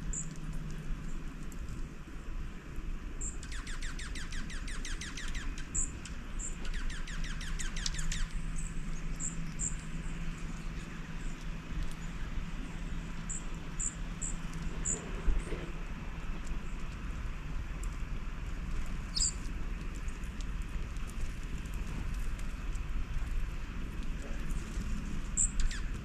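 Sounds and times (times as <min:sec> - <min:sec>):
songbird trills: 0:03.2 - 0:12.4, 0:13.2 - 0:15.5, 0:19.1 - 0:19.4, 0:25.3 - 0:26.0
high thin bird chirps: 0:19.1 - 0:19.4, 0:25.4 - 0:25.9.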